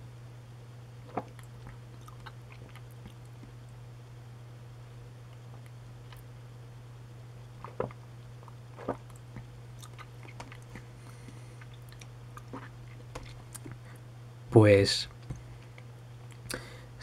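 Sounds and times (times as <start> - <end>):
low steady hum: 0.0 - 17.0
lip smacks: 1.1 - 3.6, 7.6 - 13.8
swallowing: 1.1 - 3.6, 7.6 - 14.0.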